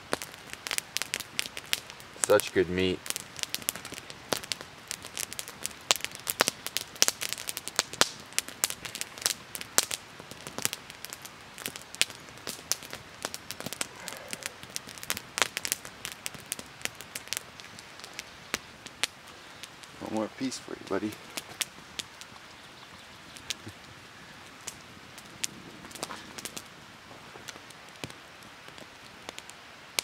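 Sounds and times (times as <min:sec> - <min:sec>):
campfire crackling and popping: 0:00.0 - 0:30.0
low hiss of burning: 0:00.0 - 0:30.0.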